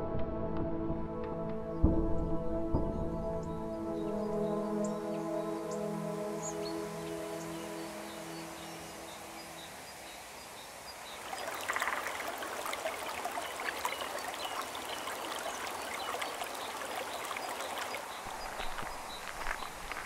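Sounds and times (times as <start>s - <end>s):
stream rushing over rocks: 6.2s - 20.0s.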